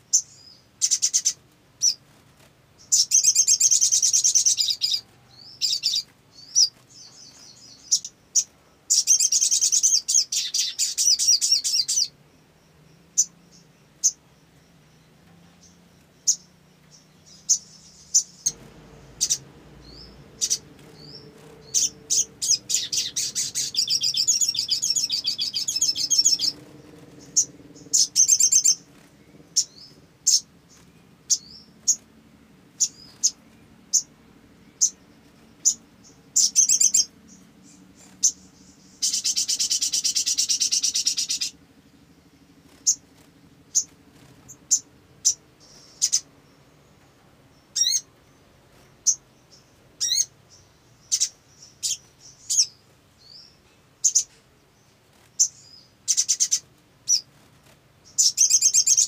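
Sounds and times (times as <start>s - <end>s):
bird sharp chirps: 0.1s - 2.0s, 2.8s - 32.1s, 32.8s - 41.6s, 42.7s - 46.3s, 48.8s - 54.3s, 55.3s - 57.3s, 58.0s - 59.0s
bird rattling trills: 17.3s - 32.1s, 34.7s - 46.3s, 55.2s - 59.0s.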